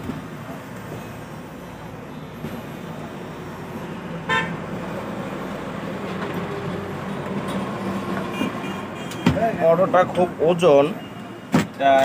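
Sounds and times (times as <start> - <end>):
road traffic: 0.0 - 12.0
vehicle horn toot: 4.3 - 4.6, 8.3 - 9.4.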